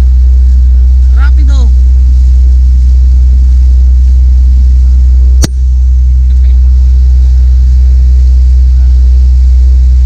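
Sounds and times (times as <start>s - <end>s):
motorboat engine droning: 0.0s - 10.0s
sharp click: 5.4s - 5.6s.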